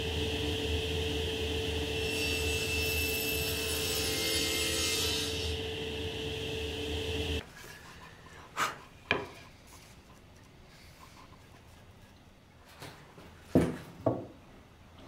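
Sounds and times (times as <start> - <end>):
table saw cutting wood: 0.0 - 7.4.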